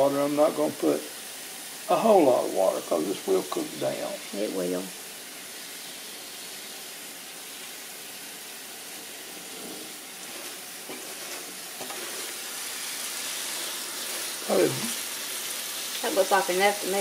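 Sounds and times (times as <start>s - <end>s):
leaves rustling: 9.3s - 17.0s.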